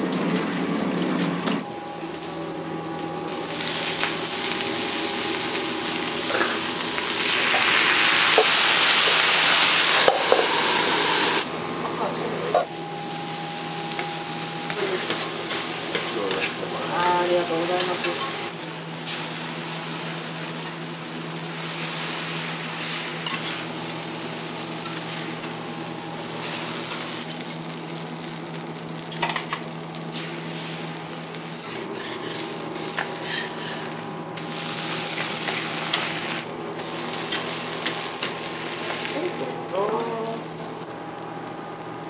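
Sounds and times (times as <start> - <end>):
noodles sizzling on griddle: 1.7 - 42.0
steady low hum: 10.7 - 42.0
metal spatulas scraping: 31.6 - 33.9.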